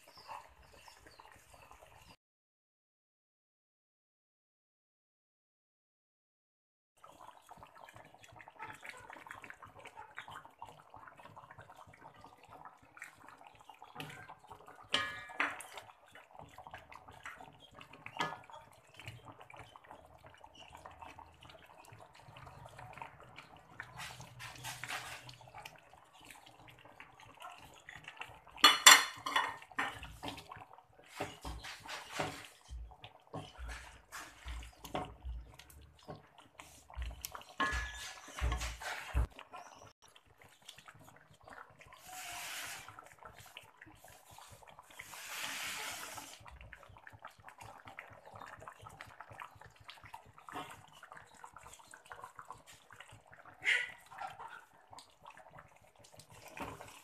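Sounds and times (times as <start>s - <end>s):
wooden spatula scraping in a wok: 23.8s - 25.4s, 31.1s - 36.9s, 37.6s - 39.3s, 42.0s - 43.6s, 44.2s - 46.4s.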